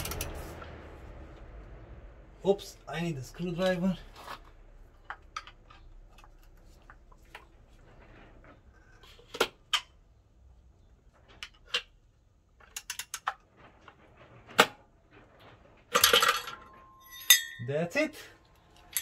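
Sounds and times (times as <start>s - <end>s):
metallic rattling: 12.6s - 17.9s.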